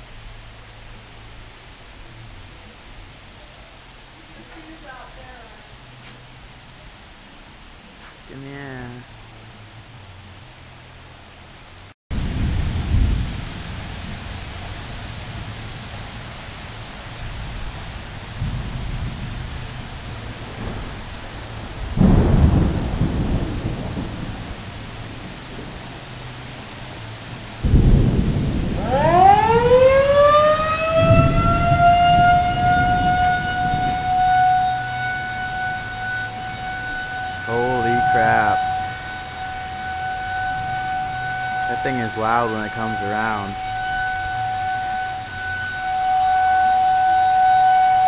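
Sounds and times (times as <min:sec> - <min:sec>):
heavy rain pouring: 0:00.0 - 0:48.0
thunder rumbling: 0:12.1 - 0:48.0
warning siren winding up: 0:28.8 - 0:48.0.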